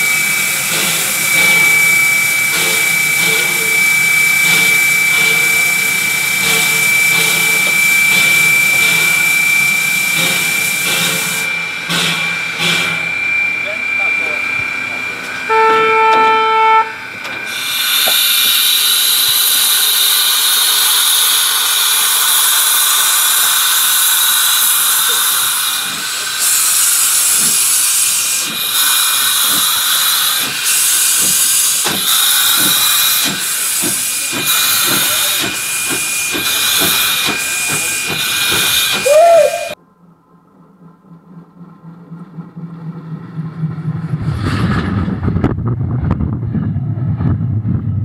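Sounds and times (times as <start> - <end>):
steam hissing: 0.0 - 16.8, 17.4 - 39.8
steam locomotive whistle: 15.4 - 39.8
steam exhaust puffs: 17.2 - 39.8.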